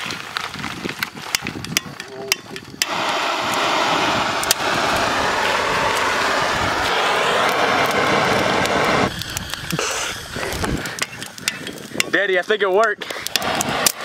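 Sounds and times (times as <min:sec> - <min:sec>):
blowtorch hissing: 0:00.0 - 0:14.0
sticks snapping: 0:08.6 - 0:12.1.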